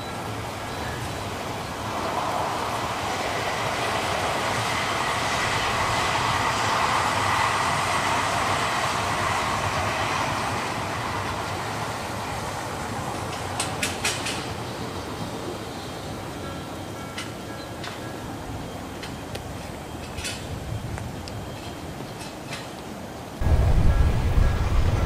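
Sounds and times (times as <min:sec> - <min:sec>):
train wheels rumbling on rail: 0:00.0 - 0:25.0
wheels clicking over rail joints: 0:10.4 - 0:14.8, 0:16.5 - 0:25.0.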